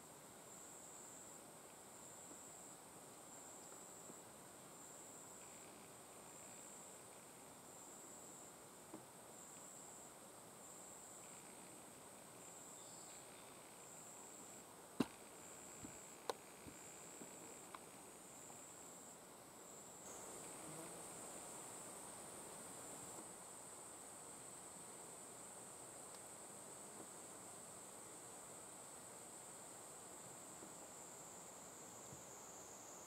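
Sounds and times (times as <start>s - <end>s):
quiet hiss: 0.0s - 33.0s
insect chirring: 4.8s - 7.1s, 9.3s - 33.0s.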